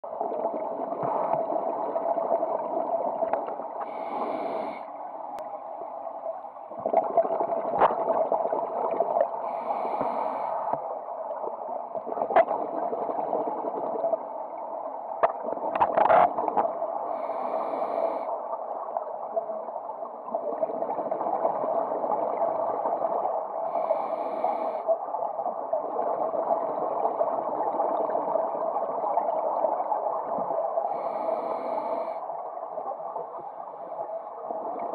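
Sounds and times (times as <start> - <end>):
regulator bubbles gurgling: 0.0 - 34.9
underwater rush of water: 0.1 - 24.9.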